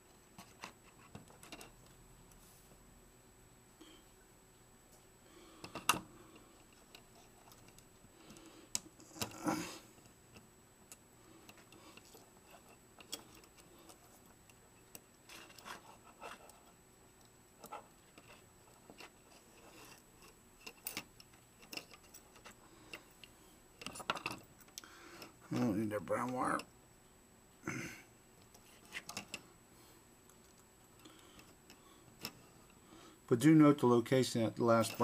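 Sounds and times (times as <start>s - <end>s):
fingers handling wires: 0.4s - 2.0s, 5.6s - 9.4s, 10.0s - 26.4s, 28.4s - 29.4s.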